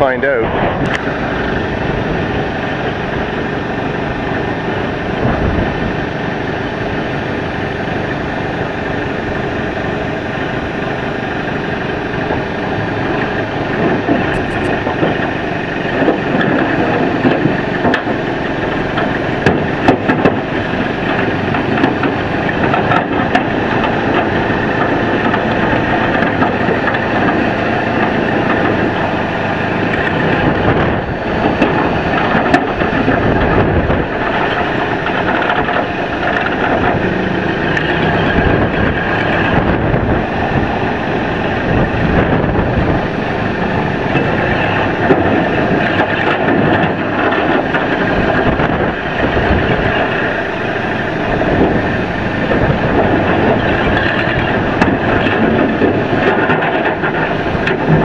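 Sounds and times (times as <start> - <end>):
engine running steadily: 0.0 - 58.0
clanks and knocks: 29.9 - 39.8, 52.5 - 58.0.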